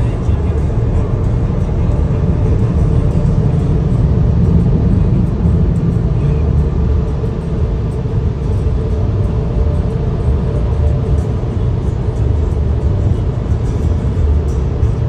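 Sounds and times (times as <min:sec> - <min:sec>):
car wash blowers blasting air: 0:00.0 - 0:15.0.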